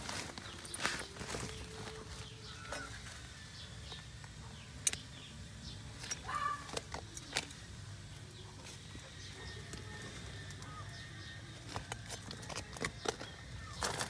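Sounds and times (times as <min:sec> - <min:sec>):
plastic sack crinkling: 0:00.0 - 0:03.3, 0:11.6 - 0:14.0.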